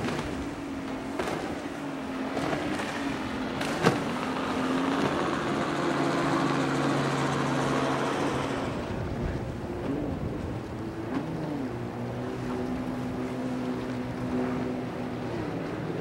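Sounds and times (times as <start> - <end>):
outboard motor running: 0.0 - 16.0
water noise: 0.0 - 16.0.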